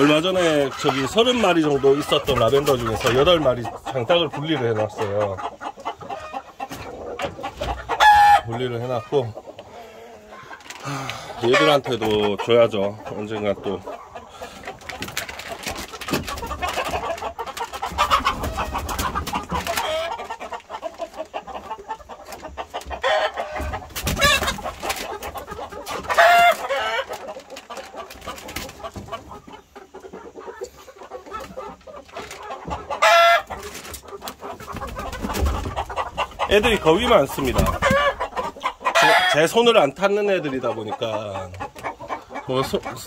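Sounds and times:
chickens clucking: 0.0s - 43.0s
loud chicken call: 7.9s - 8.6s, 26.1s - 27.1s, 37.6s - 39.5s.

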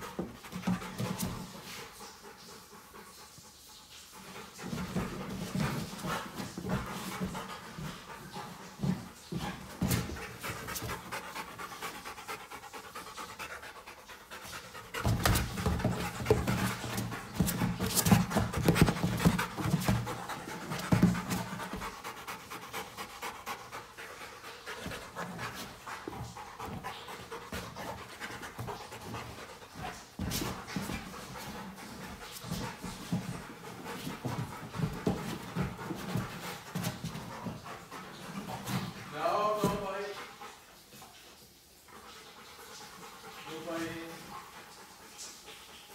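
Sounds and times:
puppy panting: 0.0s - 45.9s
knocks and thumps on ball: 15.0s - 21.9s.

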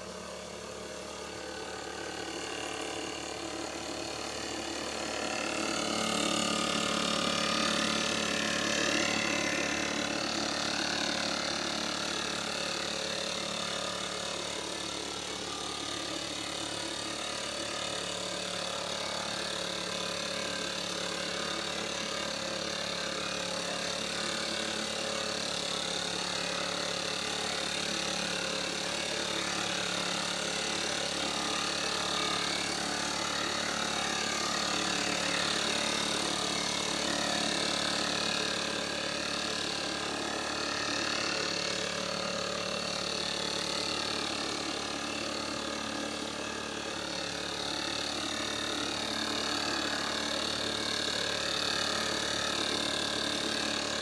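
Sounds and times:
two-stroke mist blower running: 0.0s - 54.0s.

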